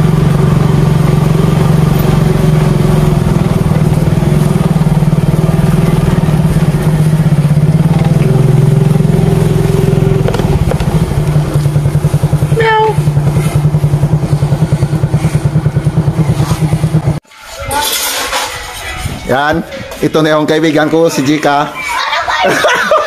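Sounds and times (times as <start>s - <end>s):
small motorcycle engine running: 0.0s - 17.2s.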